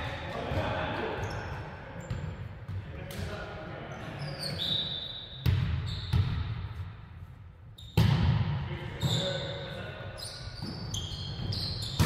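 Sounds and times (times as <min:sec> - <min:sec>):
sneaker squeaks on hardwood floor: 0:01.2 - 0:02.4, 0:03.9 - 0:06.4, 0:07.8 - 0:08.0, 0:10.2 - 0:12.0.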